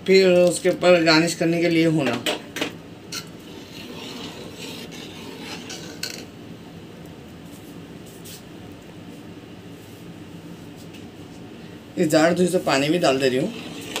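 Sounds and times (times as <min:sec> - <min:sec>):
spoon stirring and scraping in pot: 0:03.1 - 0:06.4, 0:13.1 - 0:14.0.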